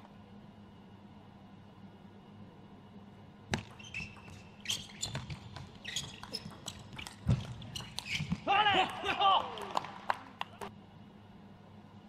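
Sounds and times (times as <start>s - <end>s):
shoes squeaking on floor: 3.6s - 8.5s.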